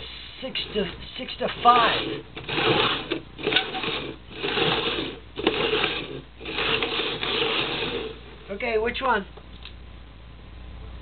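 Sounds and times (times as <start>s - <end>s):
plastic cups scraping on wooden floor: 0.6s - 8.3s.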